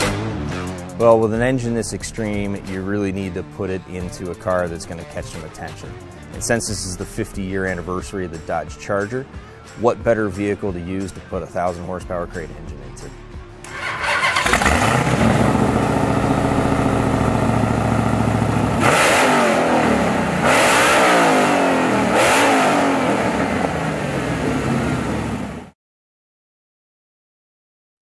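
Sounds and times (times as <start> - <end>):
car engine revving hard: 13.6 - 25.7
car engine starting and idling: 13.6 - 25.7.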